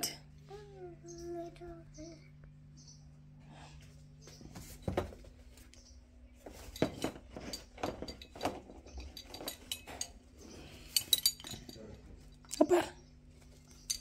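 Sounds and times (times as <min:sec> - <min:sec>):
household objects knocking and clinking: 0:06.5 - 0:10.1.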